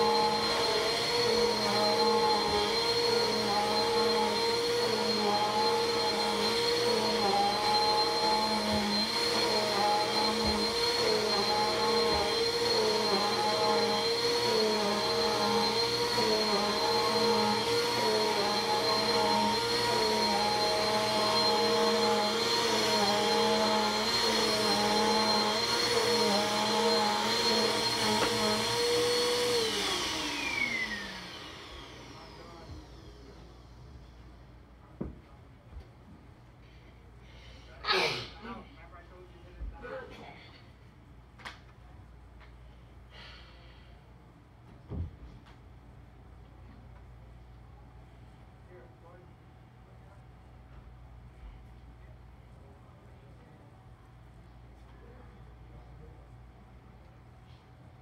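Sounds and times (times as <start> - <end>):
vacuum cleaner motor whine: 0.0 - 35.8.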